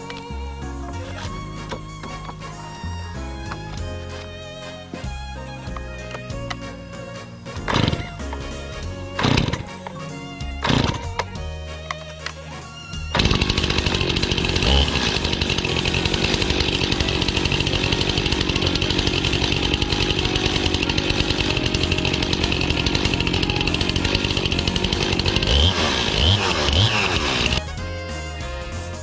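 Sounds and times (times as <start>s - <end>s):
chainsaw idling and revving: 7.6s - 8.2s, 9.2s - 9.8s, 10.6s - 11.2s, 13.1s - 27.8s.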